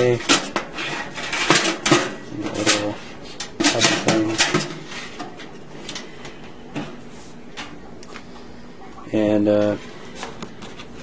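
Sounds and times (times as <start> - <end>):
metal tray clattering on wire rack: 0.0 - 3.0, 3.6 - 5.3.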